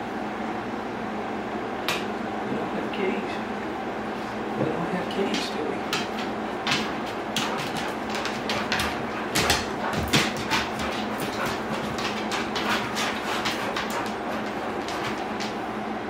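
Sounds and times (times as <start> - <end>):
dog claws clicking on wood floor: 5.2 - 15.6.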